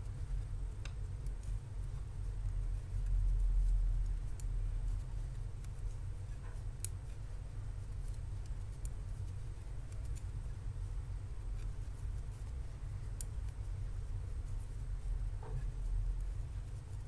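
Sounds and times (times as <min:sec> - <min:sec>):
knitting needles clicking: 0:11.5 - 0:13.7.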